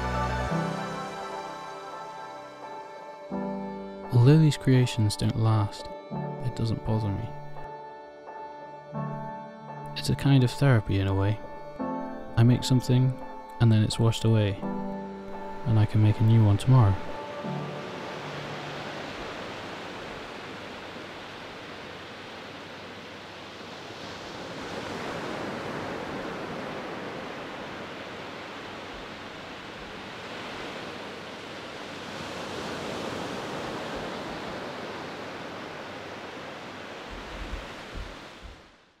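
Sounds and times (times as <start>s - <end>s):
waves washing on beach: 15.5s - 38.9s
low thuds: 37.1s - 38.7s.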